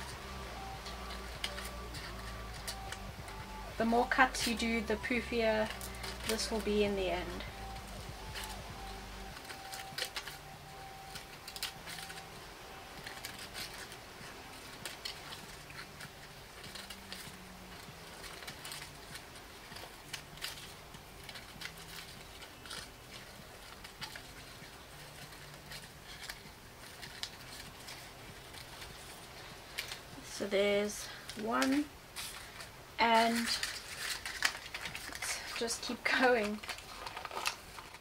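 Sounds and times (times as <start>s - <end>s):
scissors snipping paper: 0.0s - 38.0s.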